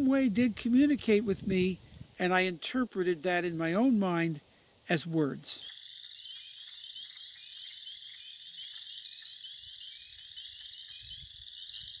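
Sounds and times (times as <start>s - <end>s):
chorus of small frogs trilling: 5.6s - 12.0s.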